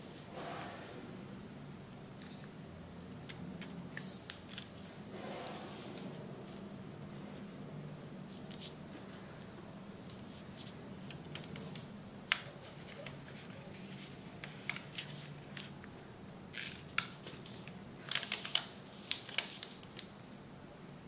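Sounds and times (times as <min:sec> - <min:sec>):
paper crackling as folded: 0:10.1 - 0:15.8, 0:16.5 - 0:20.4.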